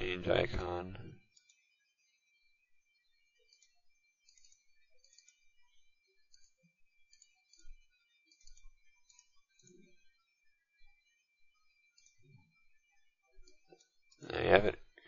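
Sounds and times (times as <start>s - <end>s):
faint computer mouse clicks: 3.4s - 5.5s, 6.3s - 9.9s, 13.4s - 14.2s.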